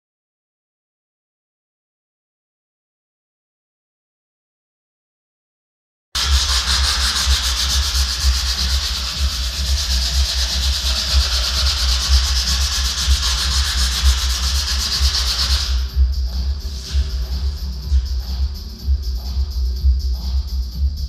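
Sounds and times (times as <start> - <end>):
sandpaper scratching wood: 6.2 - 18.0
low rumble: 6.2 - 21.0.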